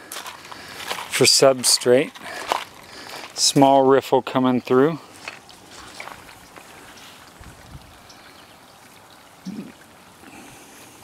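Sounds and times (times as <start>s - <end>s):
water trickling over rocks: 0.0s - 11.0s.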